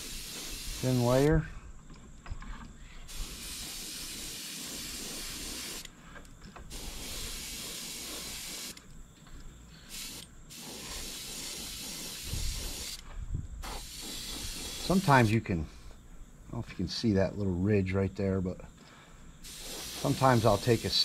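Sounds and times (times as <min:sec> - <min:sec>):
airbrush spraying hiss: 0:00.0 - 0:01.4, 0:03.0 - 0:05.9, 0:06.7 - 0:08.8, 0:09.8 - 0:15.7, 0:19.4 - 0:21.0.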